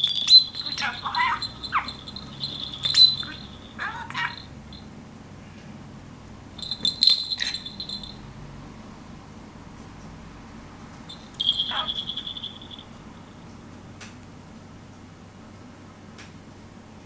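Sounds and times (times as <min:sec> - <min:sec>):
bird knocking toy: 0:00.0 - 0:04.4
budgerigar chirping: 0:00.0 - 0:04.5, 0:11.1 - 0:12.8
small bell ringing: 0:00.0 - 0:04.9, 0:06.6 - 0:08.3, 0:11.1 - 0:13.4.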